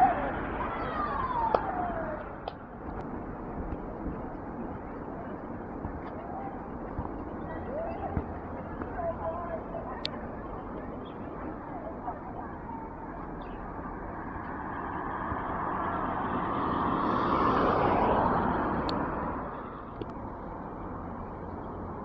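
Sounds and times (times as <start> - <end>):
outdoor background noise: 0.0 - 22.0
vehicle passing: 13.6 - 20.0.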